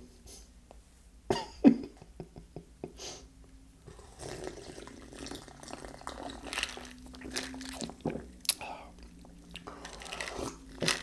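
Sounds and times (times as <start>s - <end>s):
person slurping soda: 3.9s - 8.2s, 9.6s - 11.0s
wet mouth clicks: 7.7s - 8.7s.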